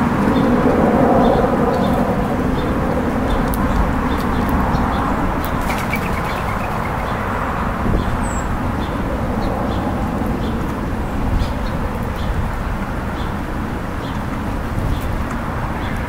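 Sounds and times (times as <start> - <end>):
steady outdoor rumble: 0.0 - 16.0
beaks pecking seed on wood: 4.2 - 7.4
wings fluttering: 4.2 - 7.8
high bird chirps: 5.6 - 7.4.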